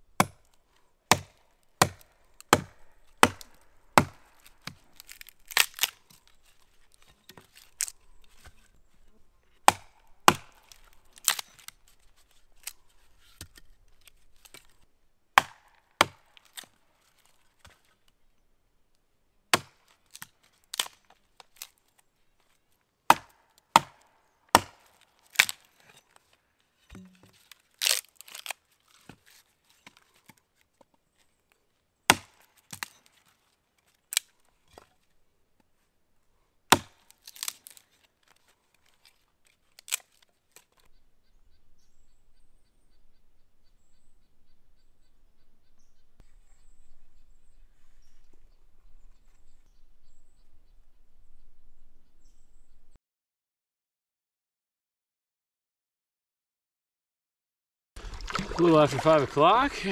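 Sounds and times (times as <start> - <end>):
hatchet chopping wood: 0.2 - 0.5, 1.1 - 6.1, 9.6 - 13.6, 15.4 - 16.7, 19.5 - 21.0, 23.1 - 25.7, 26.9 - 28.5, 32.1 - 33.0, 36.7 - 37.8.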